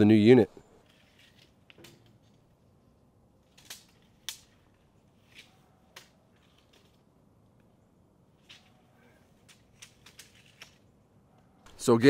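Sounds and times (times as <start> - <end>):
faint irregular clicks: 3.5 - 7.8, 8.4 - 11.8.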